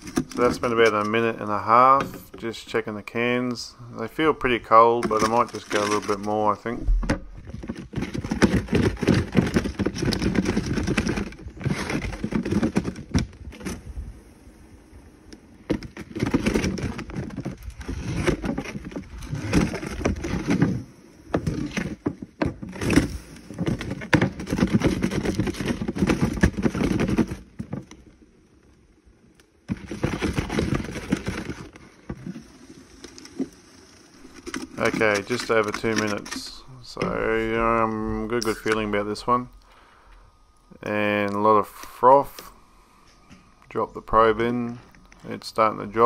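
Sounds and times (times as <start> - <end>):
plastic cooler rolling on concrete: 0.0 - 2.7, 4.6 - 13.8, 15.6 - 28.2, 29.6 - 39.5.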